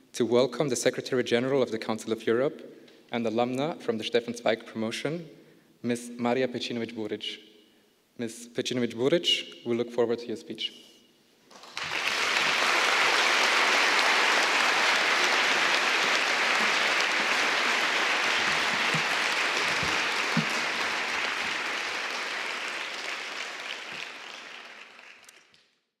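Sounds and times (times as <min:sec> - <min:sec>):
audience applauding: 0:11.5 - 0:25.6.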